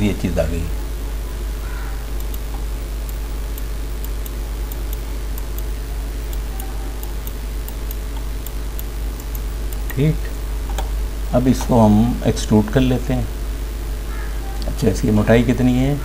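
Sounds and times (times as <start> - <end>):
low electrical hum: 0.0 - 16.0
computer mouse clicking: 2.2 - 5.7, 6.3 - 10.0.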